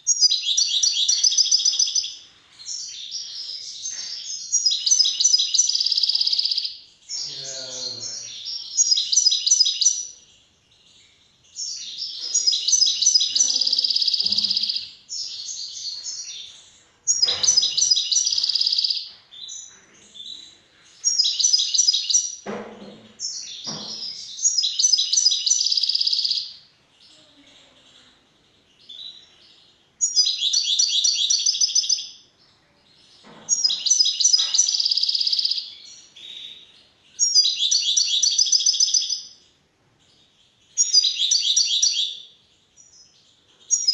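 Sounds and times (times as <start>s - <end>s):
soft knocks: 22.4s - 24.1s.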